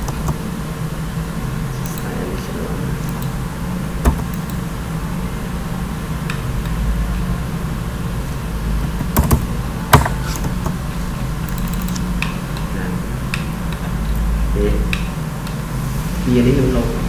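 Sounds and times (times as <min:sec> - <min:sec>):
computer mouse clicking: 0:00.0 - 0:00.4, 0:01.8 - 0:02.1, 0:03.1 - 0:03.4, 0:04.1 - 0:04.6, 0:08.8 - 0:10.8, 0:11.4 - 0:12.7, 0:13.3 - 0:14.3
low background hum: 0:00.0 - 0:17.0.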